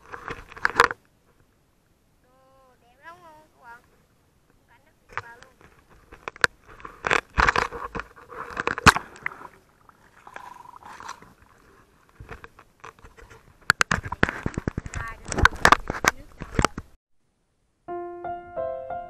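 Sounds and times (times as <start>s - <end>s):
camera rubbing against clothing: 4.8s - 9.6s, 10.2s - 17.0s.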